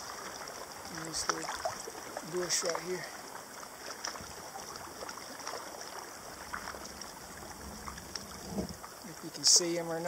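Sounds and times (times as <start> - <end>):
faint water drips and splashes: 0.0 - 10.0
water lapping along kayak hull: 0.0 - 10.0.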